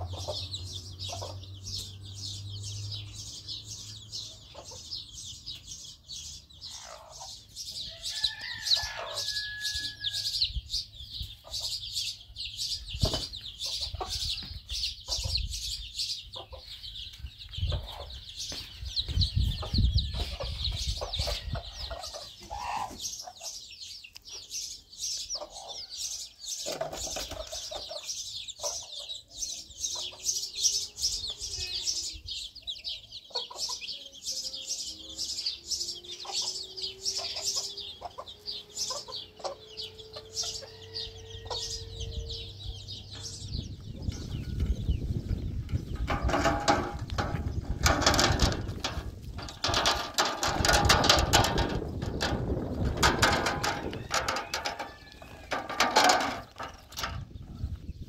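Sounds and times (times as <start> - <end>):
hen clucking: 0.0 - 1.6, 4.4 - 5.0, 6.7 - 7.5, 13.0 - 16.8, 17.6 - 23.7, 25.3 - 25.9, 26.6 - 29.2, 33.2 - 34.0, 36.2 - 57.8
chicks peeping: 0.0 - 58.0.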